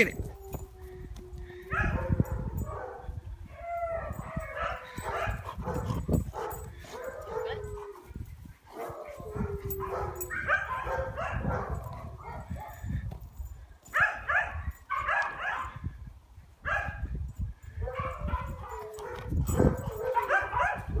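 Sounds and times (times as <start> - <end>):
dogs whining and howling: 0.2 - 12.8, 17.9 - 21.0.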